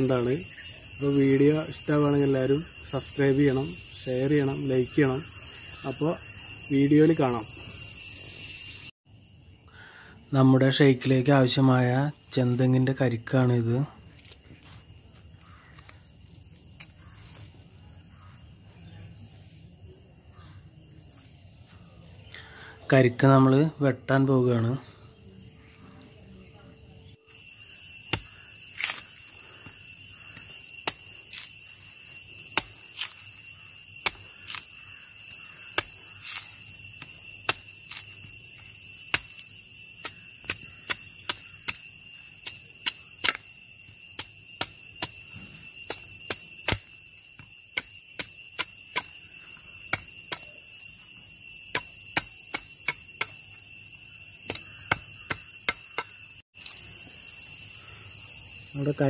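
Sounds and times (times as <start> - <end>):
high-pitched whine: 0.0 - 8.9
machete chopping coconut husk: 28.0 - 29.2, 30.2 - 31.7, 32.4 - 50.7, 51.6 - 53.6, 54.3 - 56.2.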